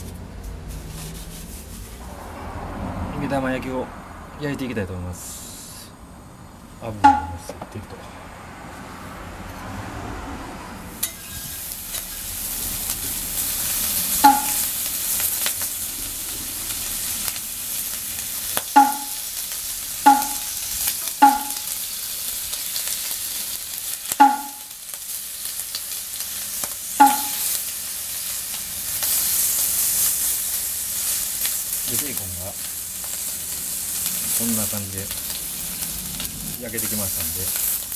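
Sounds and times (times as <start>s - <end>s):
short ringing pings: 7.0s - 7.5s, 14.2s - 14.7s, 18.8s - 19.3s, 20.1s - 20.6s, 21.2s - 21.7s, 24.2s - 24.8s, 27.0s - 27.5s
bacon sizzling on a griddle: 10.9s - 37.9s.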